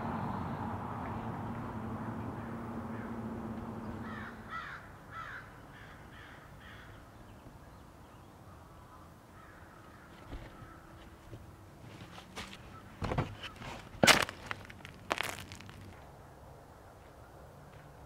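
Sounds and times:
crow cawing: 0:04.0 - 0:07.0, 0:08.5 - 0:10.9.

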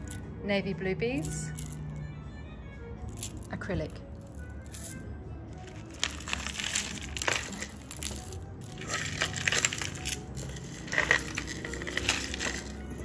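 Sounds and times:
beads and metal pieces clinking: 0:00.0 - 0:00.3, 0:01.2 - 0:01.9, 0:03.1 - 0:13.0.

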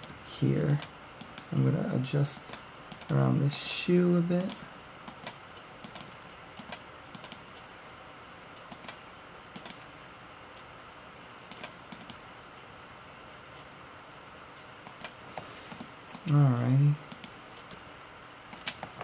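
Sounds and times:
steady low hiss: 0:00.0 - 0:19.0
mouse and keyboard clicks: 0:02.4 - 0:03.2, 0:04.4 - 0:07.6, 0:08.7 - 0:09.9, 0:11.5 - 0:12.3, 0:18.5 - 0:19.0.

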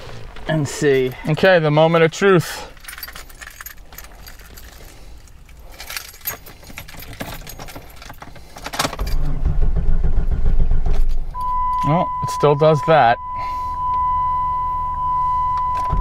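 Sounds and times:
engine cranking with rough rumble: 0:00.0 - 0:12.5
keys jingling: 0:00.6 - 0:09.2.

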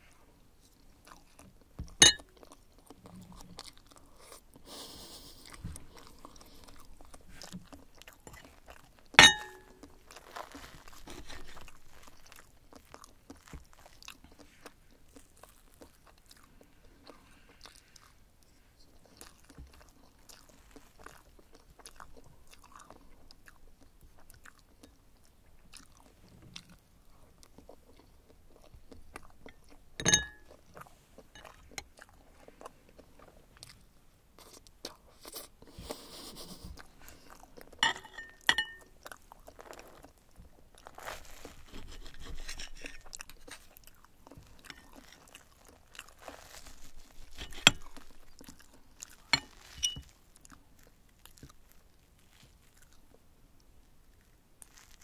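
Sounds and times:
quiet chewing: 0:00.0 - 0:55.0
cutlery clicking on ceramic plate: 0:02.0 - 0:02.2, 0:09.2 - 0:09.7, 0:30.0 - 0:30.4, 0:37.8 - 0:38.8, 0:47.4 - 0:47.9, 0:49.4 - 0:50.0.

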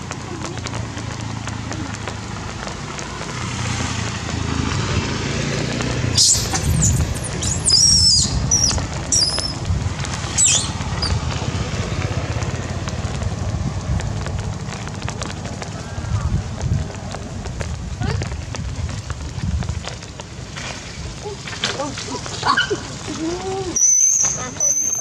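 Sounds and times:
monkey squeals: 0:06.2 - 0:09.6, 0:10.4 - 0:11.2, 0:23.8 - 0:25.0.

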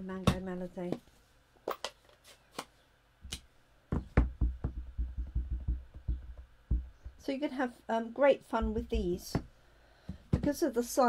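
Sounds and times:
rubber stamp tapping on ink pad: 0:03.9 - 0:07.2, 0:08.6 - 0:09.5.

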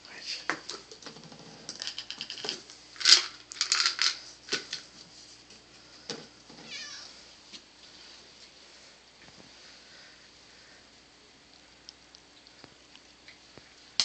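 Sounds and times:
cat calling: 0:06.7 - 0:07.1.

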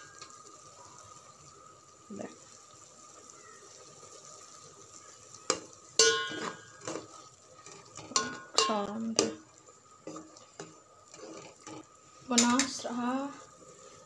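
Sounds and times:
spoon knocking and scraping pot: 0:05.5 - 0:12.8.

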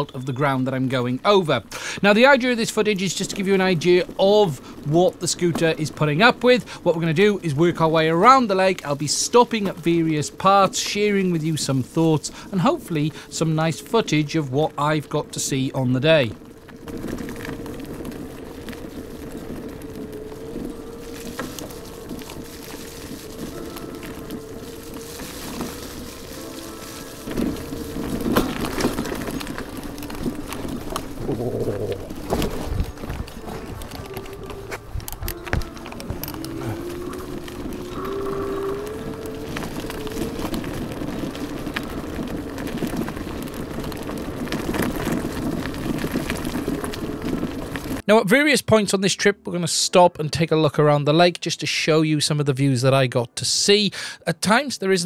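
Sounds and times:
tyre noise: 0:02.0 - 0:48.0
electric scooter motor whining: 0:16.3 - 0:48.0.

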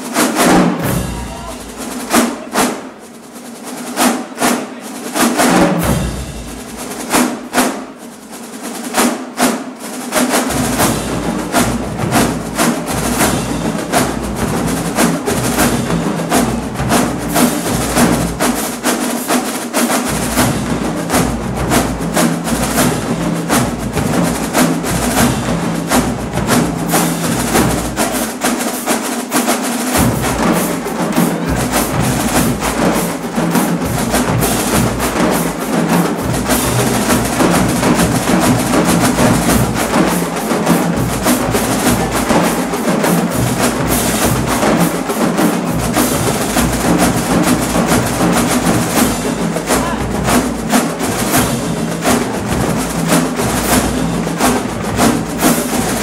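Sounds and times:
snare drums: 0:00.0 - 0:56.0
bass drums pounding: 0:00.8 - 0:02.2, 0:20.1 - 0:28.2, 0:30.0 - 0:56.0.

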